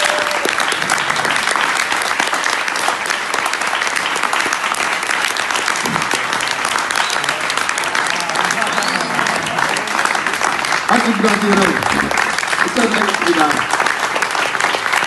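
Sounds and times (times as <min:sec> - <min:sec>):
audience applauding: 0:00.0 - 0:15.0.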